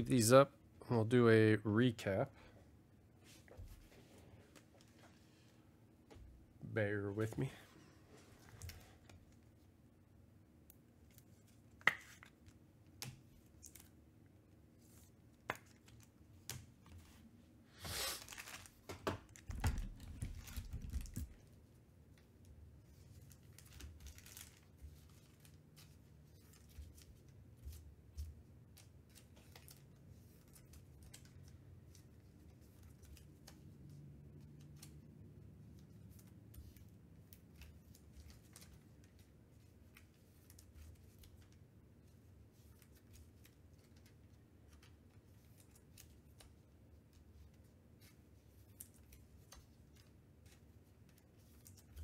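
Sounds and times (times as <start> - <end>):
plastic sleeve rustling: 14.8 - 21.6, 22.2 - 35.0.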